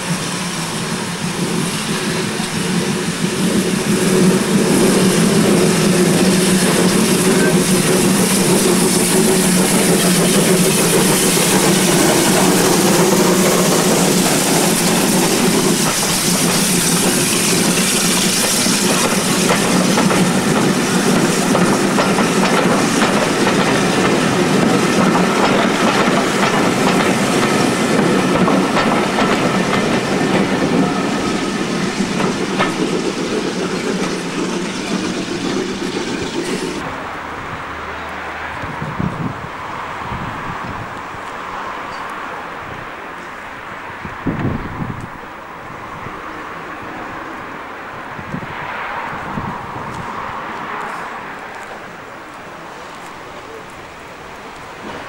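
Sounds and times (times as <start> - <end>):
steam hissing: 0.0 - 36.8
wheels clicking over rail joints: 2.4 - 36.9.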